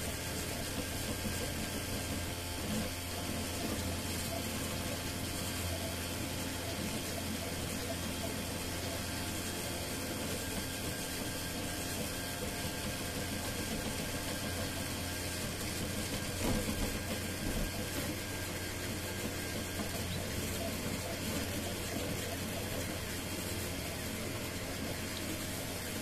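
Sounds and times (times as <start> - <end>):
printer fans and motors humming: 0.0 - 26.0.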